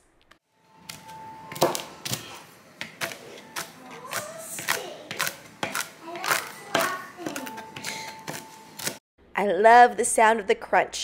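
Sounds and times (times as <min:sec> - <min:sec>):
knife chopping nuts on board: 0:00.9 - 0:09.0.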